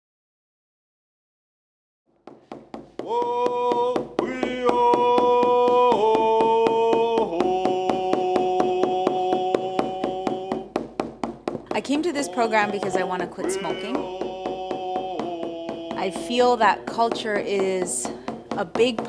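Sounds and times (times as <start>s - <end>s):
quick drumbeat: 2.3s - 19.0s
person singing long notes: 3.0s - 10.8s, 11.7s - 17.2s.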